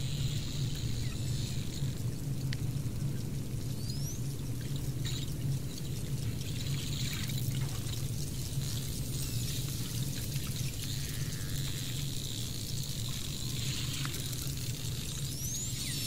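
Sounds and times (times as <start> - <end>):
water rushing and trickling: 0.0 - 16.0.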